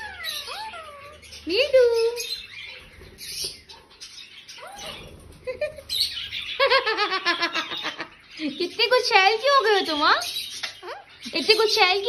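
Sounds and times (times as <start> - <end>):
parrot chattering: 0.0 - 12.0
parrot chirping: 0.0 - 12.0.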